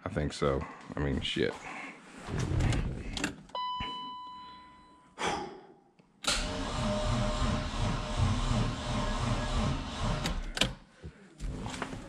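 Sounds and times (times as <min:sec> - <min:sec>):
engine starter cranking slowly: 0:06.3 - 0:10.7.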